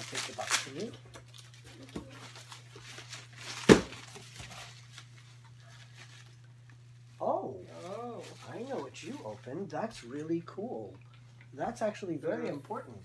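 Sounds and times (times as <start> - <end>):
cardboard and packing rustling: 0.0 - 6.5, 7.6 - 9.5.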